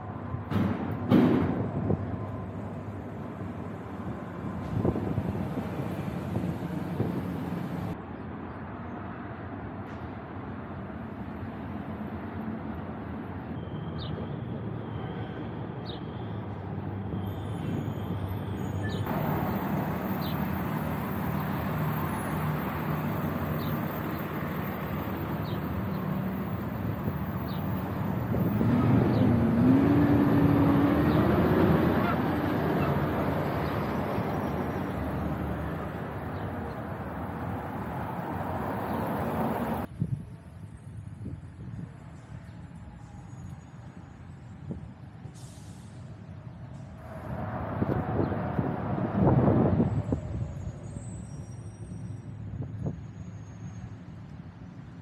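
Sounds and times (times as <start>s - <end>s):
city street traffic: 0.0s - 55.0s
vehicle engine passing: 19.1s - 39.9s.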